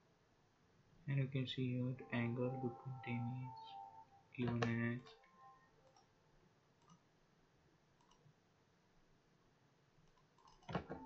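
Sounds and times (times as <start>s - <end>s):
computer mouse clicks: 6.8s - 7.0s, 8.0s - 8.3s, 10.0s - 11.0s.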